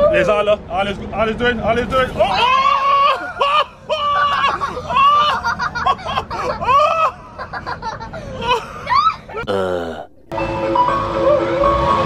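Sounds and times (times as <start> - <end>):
young children squealing: 2.2 - 5.4, 8.4 - 9.4
children laughing: 2.3 - 9.5.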